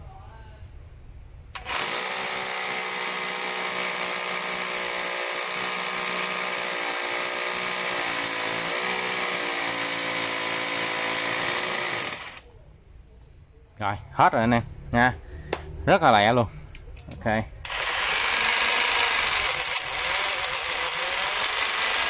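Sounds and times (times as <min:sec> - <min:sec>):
rotary hammer drilling concrete: 0:01.6 - 0:12.4, 0:17.7 - 0:22.0.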